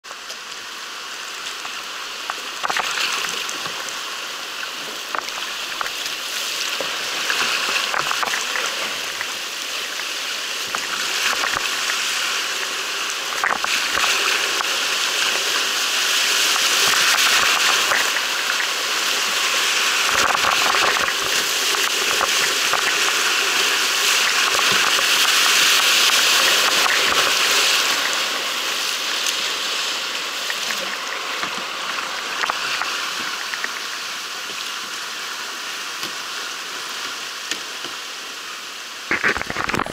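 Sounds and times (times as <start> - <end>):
water rushing over rocks: 0.0 - 39.9.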